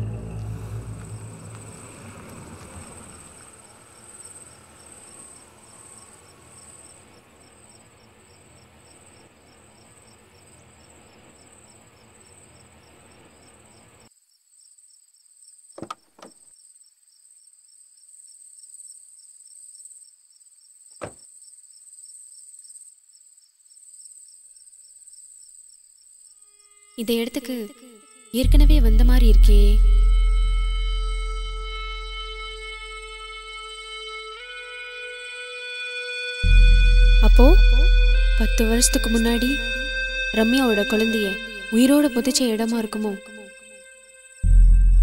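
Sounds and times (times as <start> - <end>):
car engine running: 0.0 - 3.8
crickets chirping: 0.0 - 45.0.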